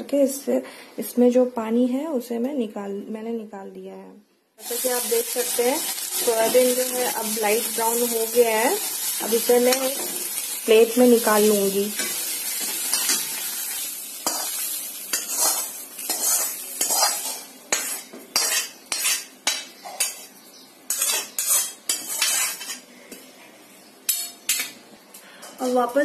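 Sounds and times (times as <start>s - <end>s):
steel spoon scraping a pan: 4.6s - 10.5s, 11.9s - 20.3s, 20.9s - 22.9s
hot oil sizzling: 4.6s - 20.2s.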